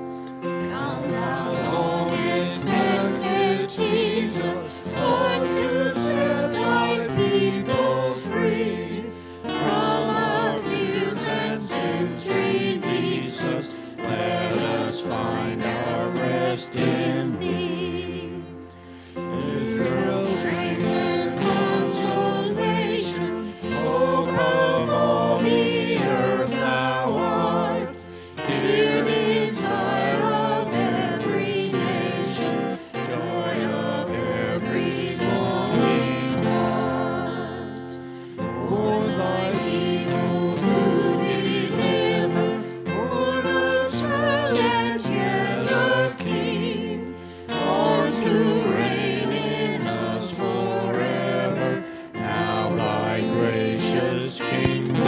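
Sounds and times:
group singing a hymn: 0.0 - 55.0
guitar: 0.0 - 55.0.

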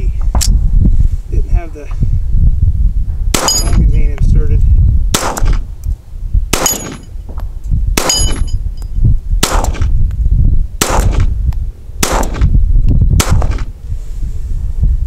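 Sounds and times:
pistol shots: 3.3 - 3.8, 5.1 - 5.6, 6.5 - 7.1, 8.0 - 8.5, 9.4 - 9.9, 10.8 - 11.3, 12.0 - 12.5, 13.2 - 13.7
metallic ring of steel target: 3.4 - 4.0, 6.6 - 7.2, 8.0 - 9.0.

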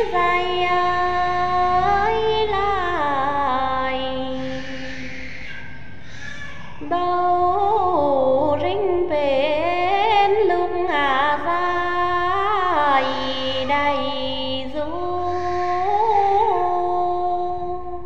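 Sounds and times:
women singing unaccompanied: 0.0 - 5.4, 6.8 - 18.0.

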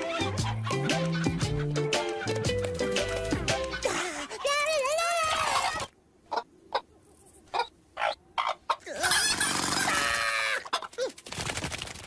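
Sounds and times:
cartoon hens clucking: 3.7 - 6.9, 7.5 - 11.1.

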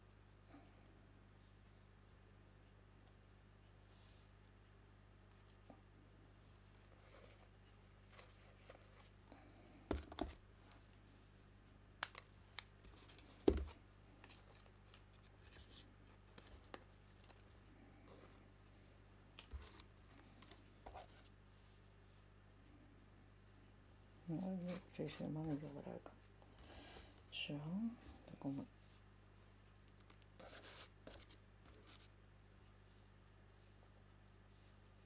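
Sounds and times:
paper taps and rustles: 9.9 - 10.4.

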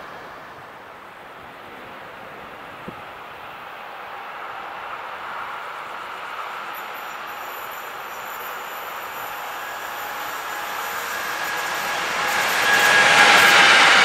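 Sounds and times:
train wheels rumbling on rail: 0.0 - 14.0
thin high whine: 5.8 - 14.0.

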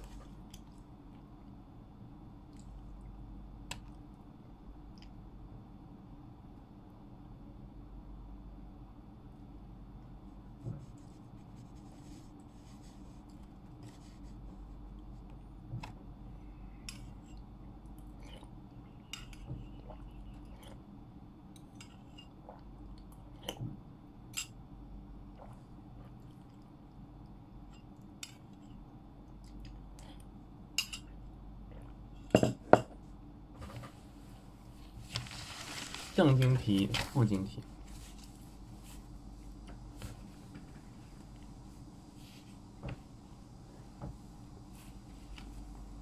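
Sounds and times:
low room hum: 0.0 - 46.0
bowl knocking on desk: 32.4 - 32.9.

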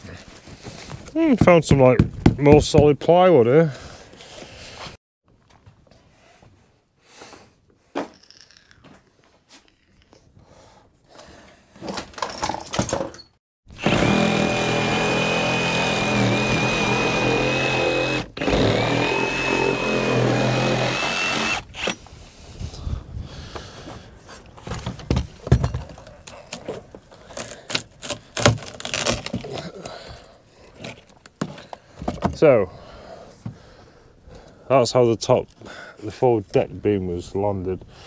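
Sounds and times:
power tool cutting wood: 13.7 - 22.0
knocks and crackles of wood: 24.5 - 30.2, 30.8 - 32.5.

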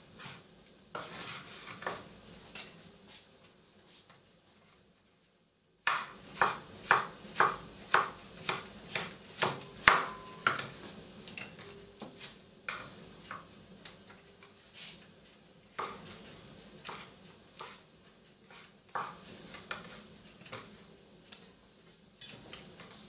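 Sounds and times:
knife chopping on wooden board: 5.9 - 10.7.

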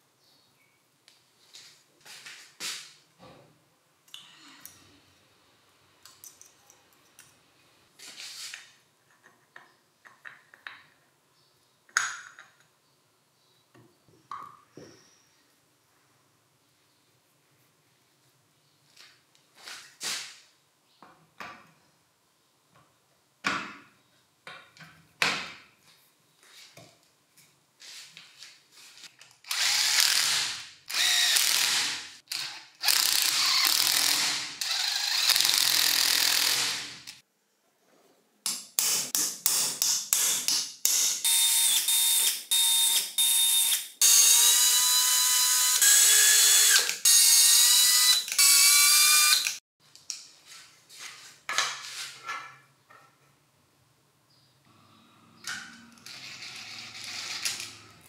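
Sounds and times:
small electric power tool whining: 29.5 - 37.2, 41.3 - 49.6.

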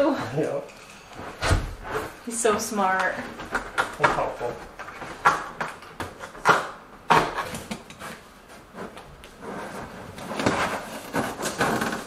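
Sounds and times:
plastic sheets knocking and crackling: 3.0 - 12.0
plastic sheet rustling: 7.4 - 12.0.

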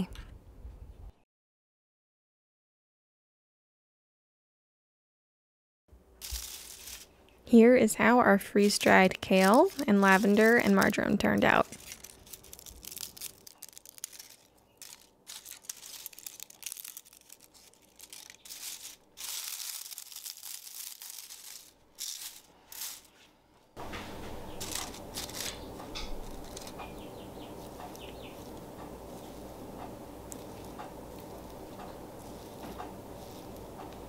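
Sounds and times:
dry leaves crackling and crunching: 6.2 - 7.1, 8.6 - 23.2, 24.2 - 29.6
steady low hum: 23.5 - 34.0.

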